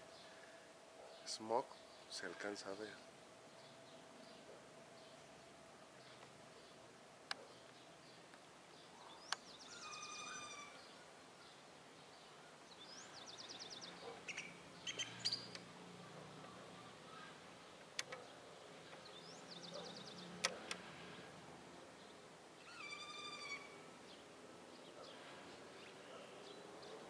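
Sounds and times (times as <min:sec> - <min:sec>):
faint background noise: 0:00.0 - 0:27.0
songbirds chirping and trilling: 0:00.0 - 0:27.0
sharp clicks: 0:09.3 - 0:09.5, 0:15.5 - 0:15.7, 0:17.8 - 0:18.3, 0:20.4 - 0:20.8.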